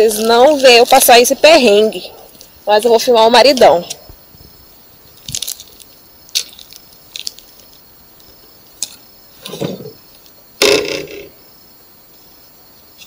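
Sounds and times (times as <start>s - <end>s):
footsteps in dry grass: 0.0s - 9.0s.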